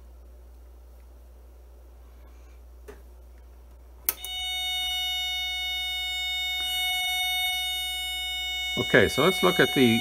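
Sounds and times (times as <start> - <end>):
harsh square-wave tone: 4.2 - 10.0.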